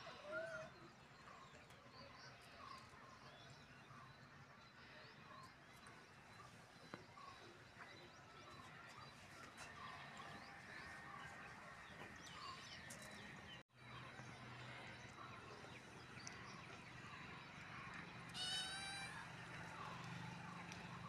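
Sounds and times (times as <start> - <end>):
kitten meowing: 18.4 - 19.2.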